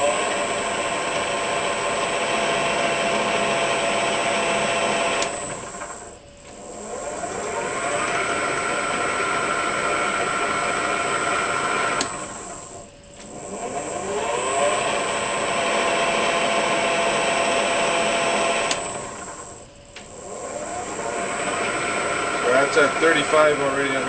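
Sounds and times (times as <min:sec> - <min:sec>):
metal lathe electronic whine: 0:00.0 - 0:24.0
selector switch click: 0:05.2 - 0:05.4, 0:12.0 - 0:12.2, 0:18.6 - 0:20.1.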